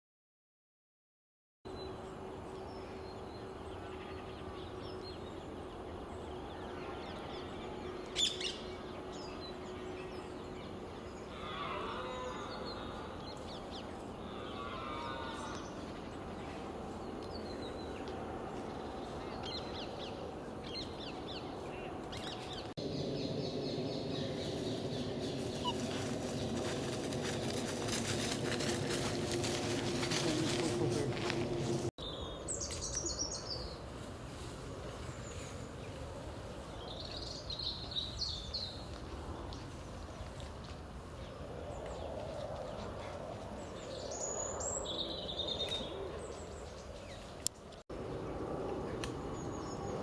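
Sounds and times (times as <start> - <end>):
bird calls: 6.2 - 33.7.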